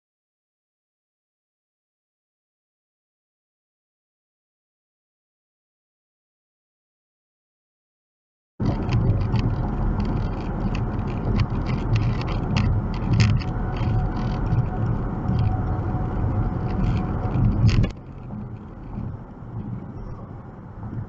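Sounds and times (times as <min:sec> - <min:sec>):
car road and engine rumble: 0:08.6 - 0:21.0.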